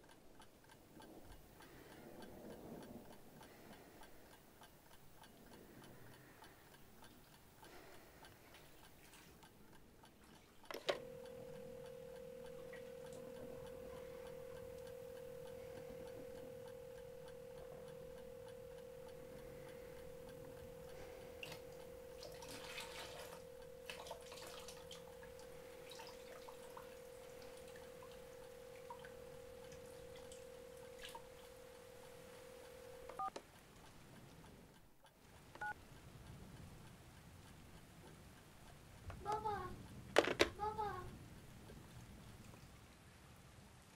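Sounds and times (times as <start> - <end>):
faint even ticking: 0.0 - 42.8
steady pure tone drone: 10.7 - 33.3.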